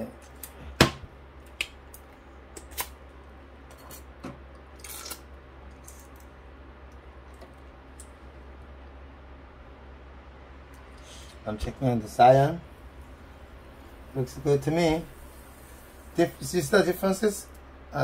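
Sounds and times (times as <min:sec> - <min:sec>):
low steady hum: 0:00.0 - 0:18.0
short hiss: 0:10.9 - 0:11.4.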